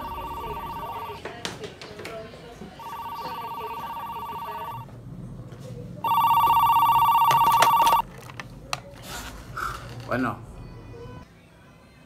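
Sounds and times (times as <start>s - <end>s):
desk telephone ringing: 0.0s - 1.2s, 2.8s - 4.9s, 6.0s - 8.0s.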